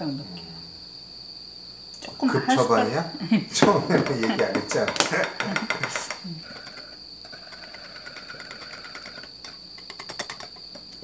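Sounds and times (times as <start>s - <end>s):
whisk beating in glass bowl: 3.6s - 10.8s.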